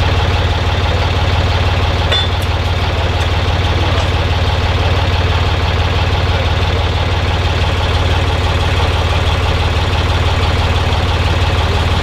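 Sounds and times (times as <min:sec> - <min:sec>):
engine idling: 0:00.0 - 0:12.0
sharp metallic clink: 0:02.1 - 0:02.5.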